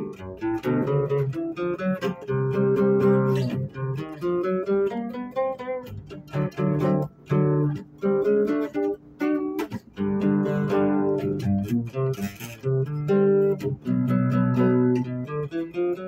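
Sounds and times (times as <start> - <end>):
guitar picked notes and chords: 0.0 - 16.0.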